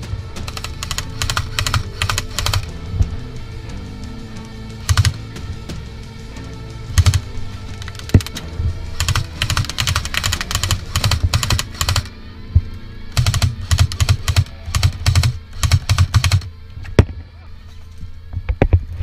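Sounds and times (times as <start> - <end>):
airsoft gun rapid firing: 0.5 - 2.7, 4.8 - 5.2, 7.0 - 8.4, 9.0 - 12.1, 13.2 - 16.5.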